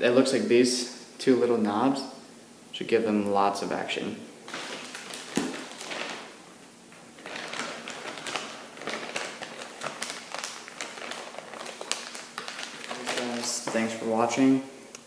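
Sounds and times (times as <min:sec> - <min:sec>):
plastic package crinkling: 0:04.4 - 0:14.4.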